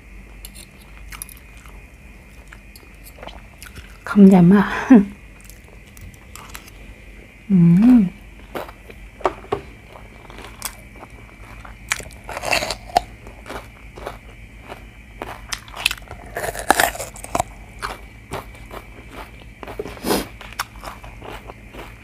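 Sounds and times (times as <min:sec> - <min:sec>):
person humming: 0:07.5 - 0:08.2
wet chewing: 0:09.9 - 0:22.0
crunchy bites into pepper: 0:11.7 - 0:14.2, 0:14.8 - 0:22.0.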